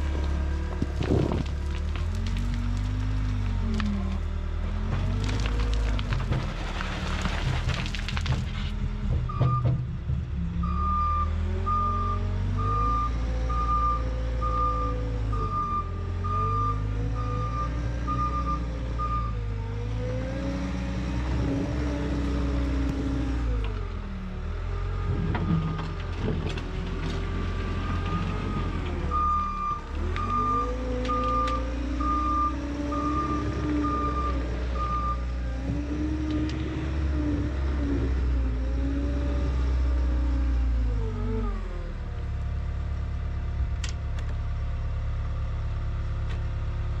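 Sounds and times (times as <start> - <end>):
backup alarm beeping: 28.1 - 35.2.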